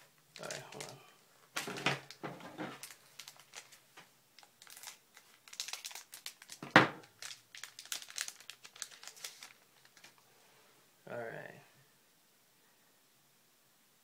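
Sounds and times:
wrapper crinkling and tearing: 0.3 - 3.8, 4.4 - 10.2.

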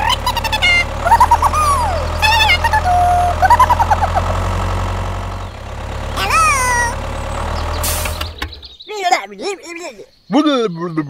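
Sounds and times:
tractor engine idling: 0.0 - 9.8.

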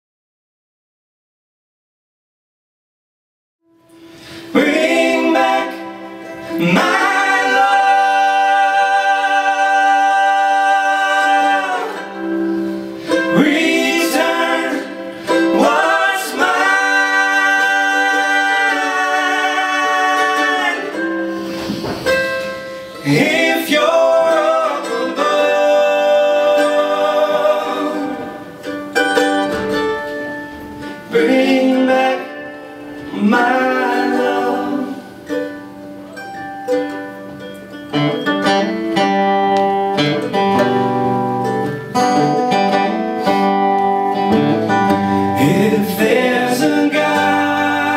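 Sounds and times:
acoustic guitar: 3.7 - 47.9
men singing in harmony: 4.5 - 21.9, 22.9 - 28.6, 31.0 - 35.2, 45.1 - 47.9.

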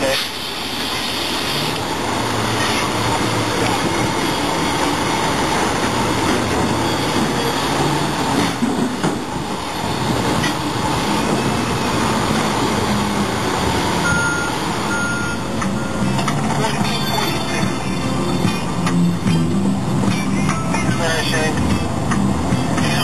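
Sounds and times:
heavy diesel machinery running: 0.0 - 23.0
short warning beeps: 14.0 - 16.1.

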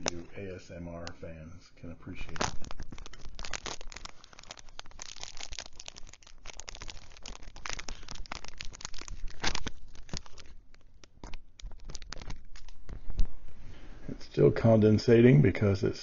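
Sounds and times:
plastic wrapper crinkling: 2.1 - 13.4.

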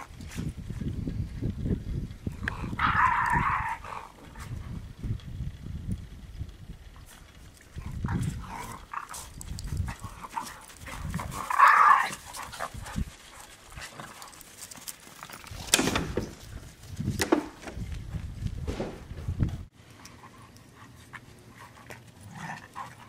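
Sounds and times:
dogs rumbling: 1.6 - 4.9, 7.0 - 14.8.

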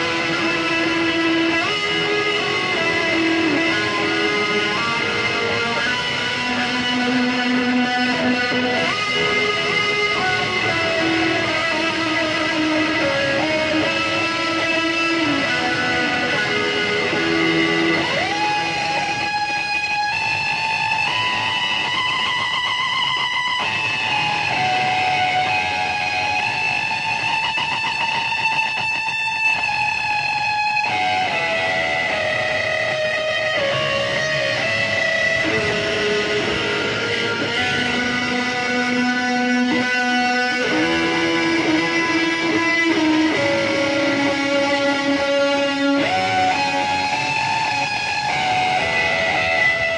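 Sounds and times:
electric guitar slow melody: 0.0 - 49.9.

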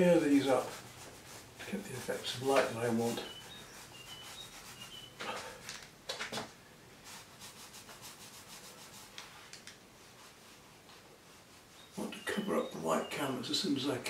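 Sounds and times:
sponge roller scratching on canvas: 0.0 - 5.2, 7.0 - 9.2, 10.0 - 12.9.

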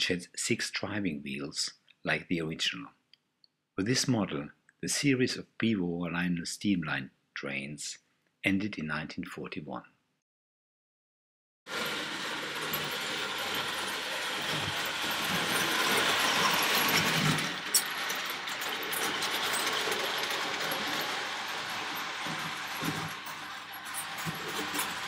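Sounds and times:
toy train whirring on rails: 11.7 - 25.0.

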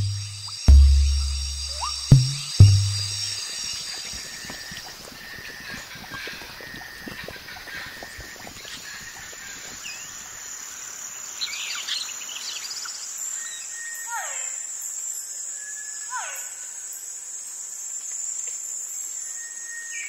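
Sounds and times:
bird chirps: 0.0 - 10.2
high insect hum: 0.0 - 20.0.

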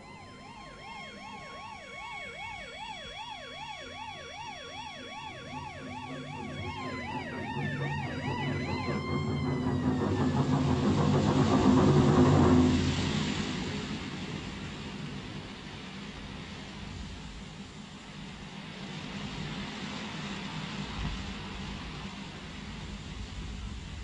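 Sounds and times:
emergency siren warbling: 0.0 - 13.7
rushing rumble of vehicles: 4.3 - 24.0.

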